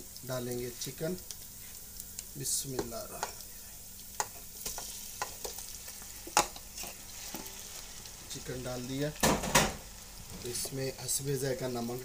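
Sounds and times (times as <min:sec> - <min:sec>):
food sizzling in a frying pan: 0:00.0 - 0:12.0
spoon clacking on plate and pan: 0:04.2 - 0:05.6, 0:06.3 - 0:07.5.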